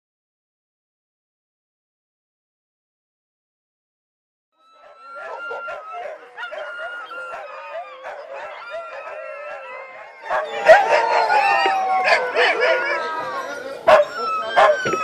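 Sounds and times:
huskies howling and barking: 4.6 - 15.0.

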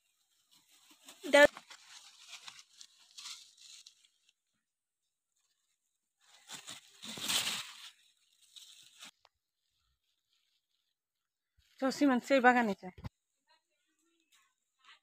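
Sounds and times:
leaves rustling: 0.0 - 4.6, 5.3 - 11.0.

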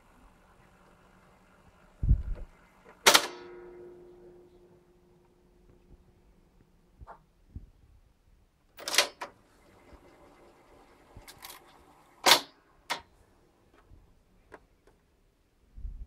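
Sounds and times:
tape transport running: 0.0 - 3.9, 8.8 - 13.1.

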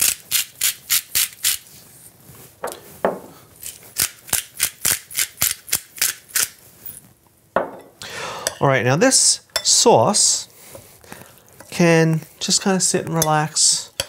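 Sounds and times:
pepper mill grinding: 0.0 - 1.7.

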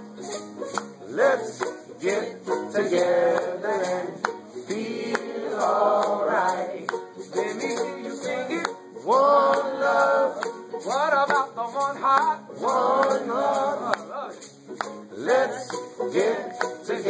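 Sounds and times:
strummed acoustic strings: 0.0 - 17.0
men singing together: 1.1 - 10.6, 12.2 - 14.4, 15.2 - 17.0.

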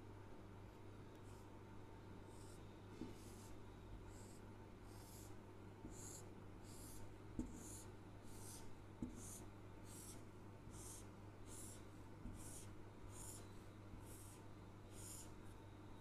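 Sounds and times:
marker swiping on whiteboard: 5.9 - 13.4.

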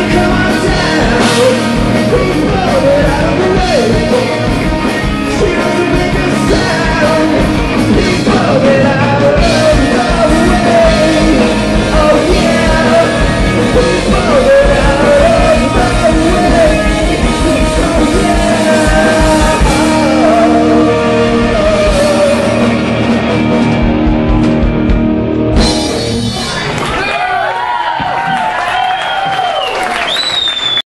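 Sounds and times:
man singing lead: 0.0 - 23.6
live rock band playing: 0.0 - 27.2.

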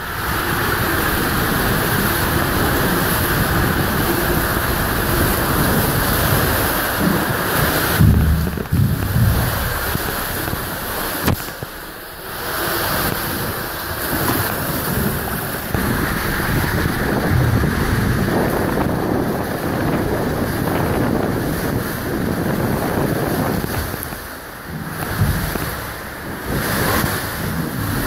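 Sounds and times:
water rushing in tube slide: 0.0 - 28.0
sharp knock: 8.0 - 10.6.

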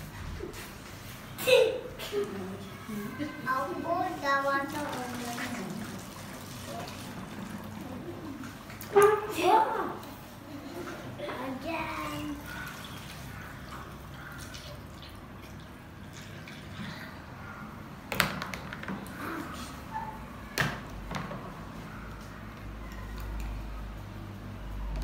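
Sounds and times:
water trickling through a funnel: 4.1 - 9.3, 12.3 - 17.3.

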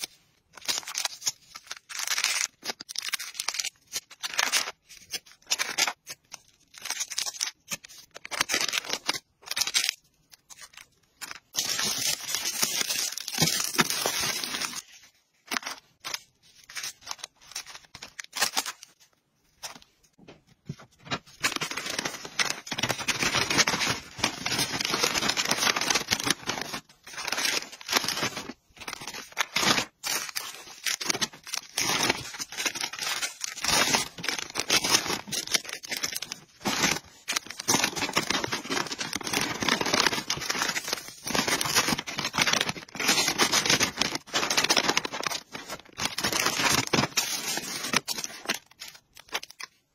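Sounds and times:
plastic bags rustling and crinkling: 10.6 - 19.0, 20.7 - 49.7.

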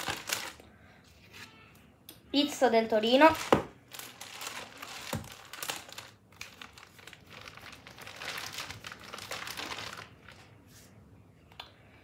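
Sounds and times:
plastic binder pages crinkling: 0.0 - 0.6, 3.2 - 10.5.

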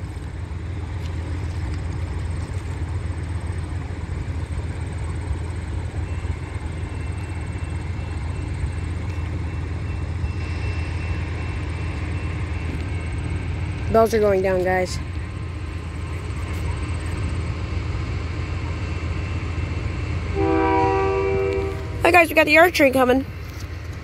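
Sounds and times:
diesel locomotive rumbling: 0.0 - 24.0.

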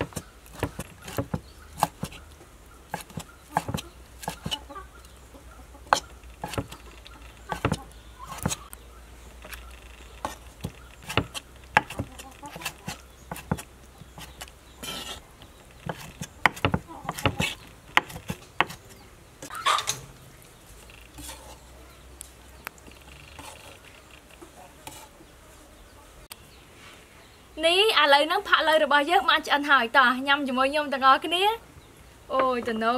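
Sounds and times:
knife knocking on wooden board: 15.9 - 17.4.

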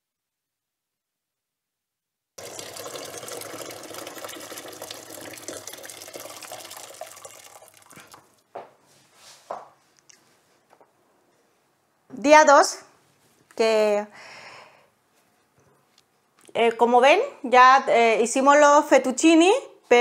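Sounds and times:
tap water running into sink: 2.4 - 8.3.

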